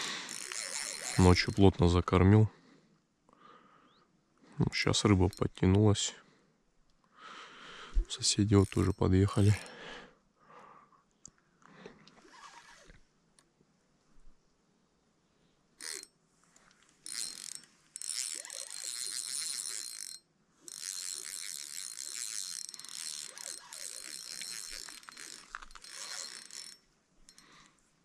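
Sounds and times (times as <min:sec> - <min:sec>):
fishing reel clicking: 0:00.0 - 0:01.8, 0:08.0 - 0:09.8, 0:15.8 - 0:27.6.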